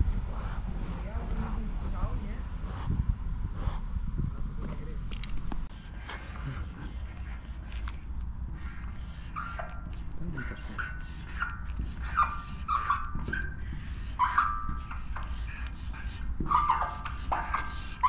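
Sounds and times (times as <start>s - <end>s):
low rumble: 0.0s - 5.7s
marker squeaking on glossy sign: 5.7s - 18.0s.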